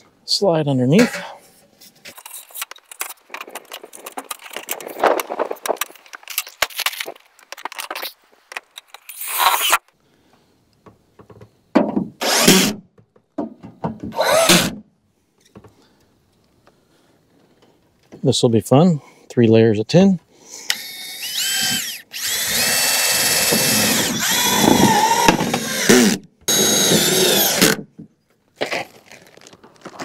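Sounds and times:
power drill driving screws: 0:12.2 - 0:12.8, 0:14.1 - 0:14.8, 0:20.7 - 0:27.8.

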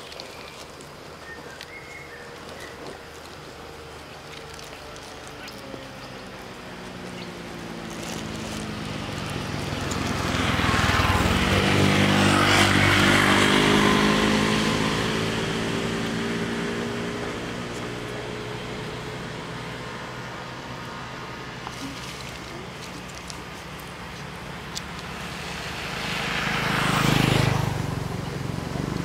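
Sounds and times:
car driving past: 0:07.7 - 0:22.0, 0:24.6 - 0:29.0.

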